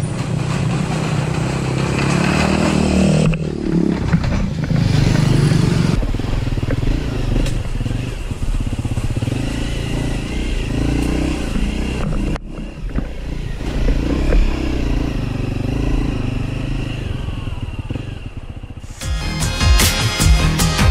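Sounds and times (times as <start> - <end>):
dirt bike engine: 0.0 - 20.9.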